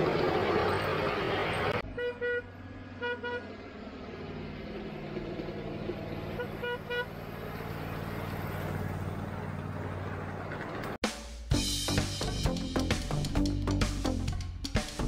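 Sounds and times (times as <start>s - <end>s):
locomotive motor hum: 0.0s - 11.0s
locomotive horn toots: 1.8s - 3.6s, 6.3s - 7.2s.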